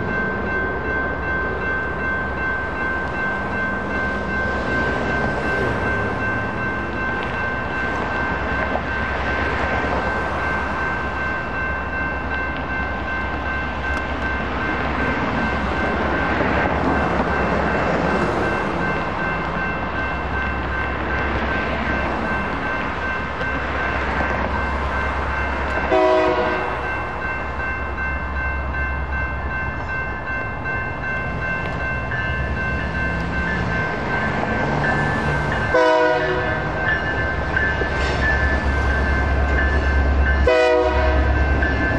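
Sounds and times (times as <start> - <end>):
crossing warning bell ringing: 0.0 - 41.9
rail traffic rumble: 0.0 - 41.9
train horn toots: 25.9 - 26.8, 35.7 - 36.7, 40.4 - 41.4.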